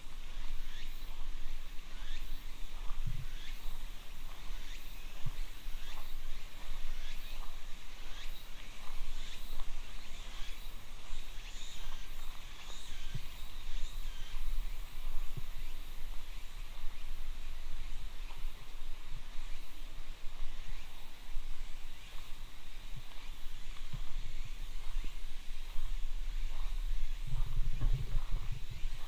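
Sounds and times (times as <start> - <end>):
footsteps crunching on gravel: 22.1 - 29.0.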